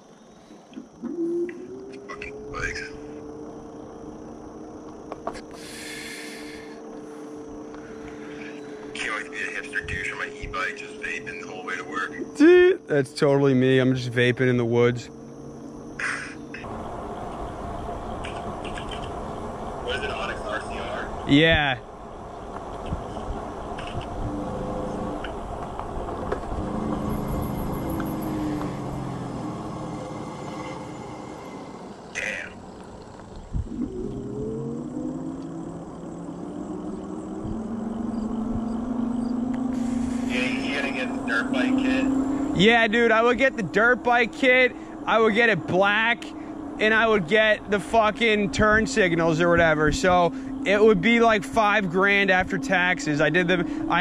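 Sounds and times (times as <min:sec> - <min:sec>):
tyres and wind rumbling: 0:00.0 - 0:54.0
electric bike motor whining: 0:21.3 - 0:54.0.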